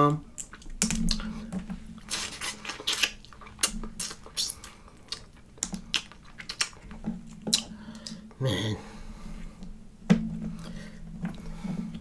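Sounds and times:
crab shell cracking and chewing: 0.3 - 1.3, 2.0 - 8.4.

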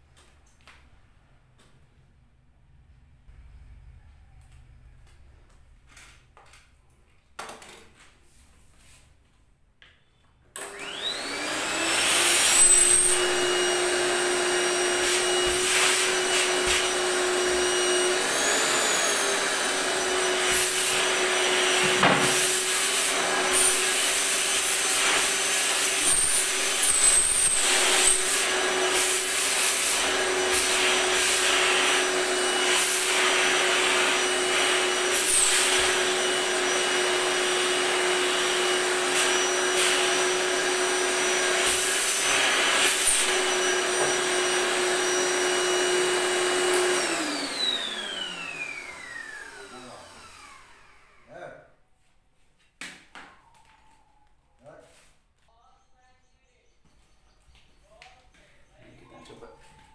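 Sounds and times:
vacuum cleaner motor whining: 10.6 - 51.4.

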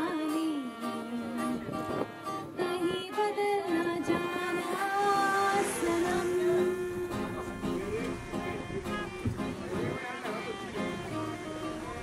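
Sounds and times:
woman singing: 0.0 - 7.7
strummed acoustic guitar: 0.0 - 12.0
violin: 0.0 - 12.0.

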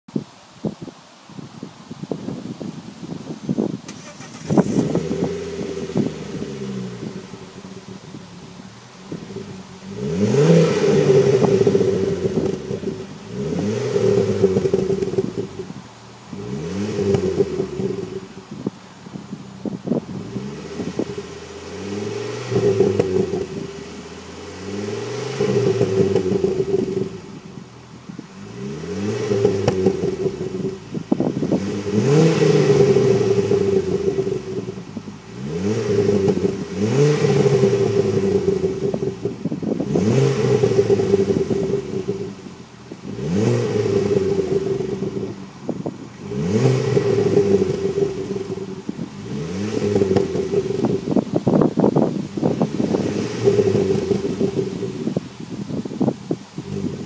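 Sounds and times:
car engine revving: 3.9 - 57.0.

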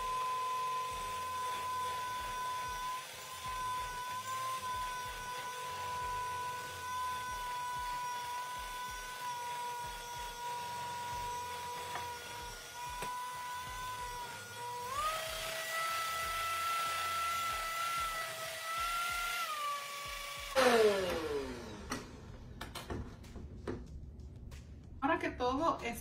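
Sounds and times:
electric hand mixer whine: 0.0 - 22.5.

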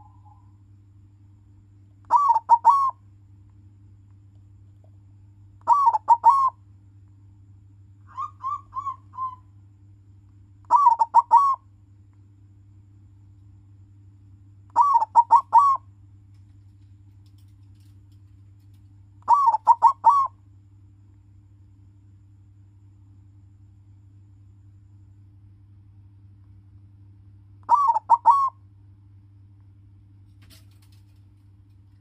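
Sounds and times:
dove cooing: 0.0 - 0.5, 2.1 - 3.0, 5.6 - 6.6, 8.1 - 9.5, 10.7 - 11.6, 14.7 - 15.8, 19.2 - 20.4, 27.7 - 28.6.

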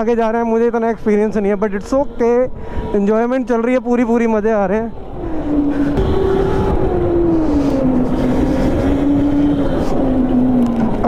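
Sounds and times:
go-kart engine running: 5.1 - 11.0.

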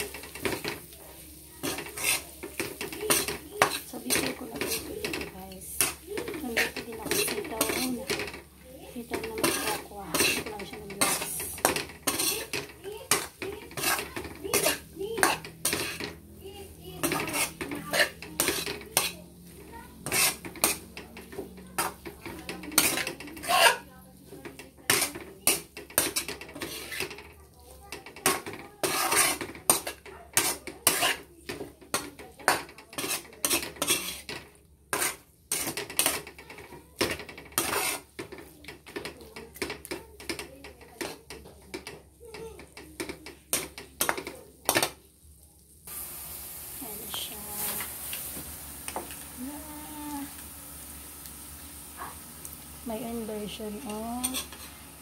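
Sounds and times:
metal spatula scraping a wok: 0.0 - 45.0, 46.8 - 49.2, 53.2 - 54.9.

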